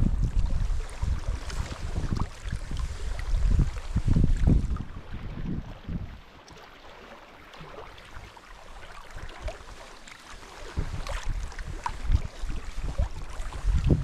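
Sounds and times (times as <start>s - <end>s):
wind buffeting microphone: 0.0s - 6.3s, 10.4s - 14.0s
paddle splashes and drips: 0.0s - 14.0s
water lapping against hull: 0.0s - 14.0s.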